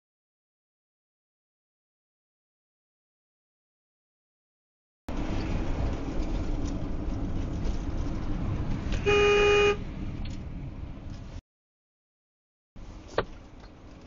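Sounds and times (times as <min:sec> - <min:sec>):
road and engine rumble: 0:05.1 - 0:11.4, 0:12.8 - 0:14.0
car horn honk: 0:09.0 - 0:09.8.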